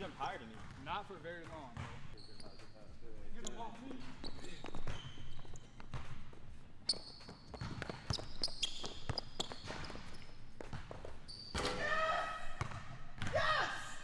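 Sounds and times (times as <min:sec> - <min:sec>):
sneaker squeaks: 0:00.0 - 0:13.6
basketball bouncing on hardwood floor: 0:07.5 - 0:11.7, 0:12.6 - 0:13.4.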